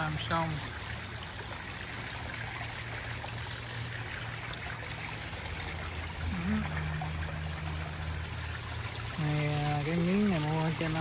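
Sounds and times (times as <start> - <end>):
fountain water splashing: 0.0 - 11.0
low hum: 4.0 - 10.3.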